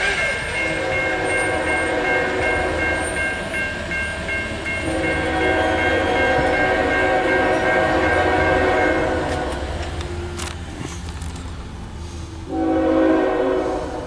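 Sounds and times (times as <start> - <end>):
locomotive horn: 0.0 - 3.2, 4.8 - 9.8, 12.5 - 14.0
railroad crossing bell ringing: 0.0 - 10.4.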